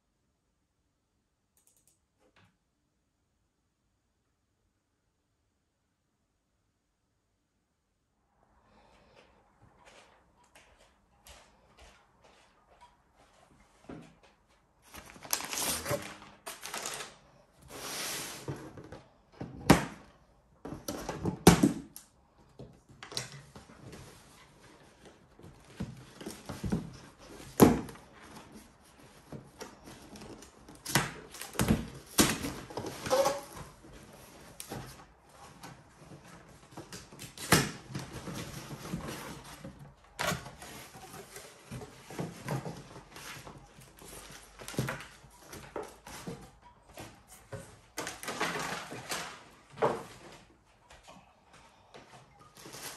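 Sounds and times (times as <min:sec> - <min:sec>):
paper mailer rustling: 0:14.8 - 0:18.3
cardboard box on wooden table: 0:37.9 - 0:50.5.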